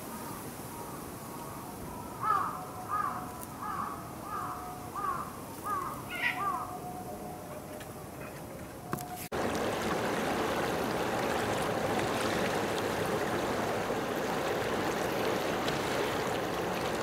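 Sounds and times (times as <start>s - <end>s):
animal calling: 4.3s - 6.9s.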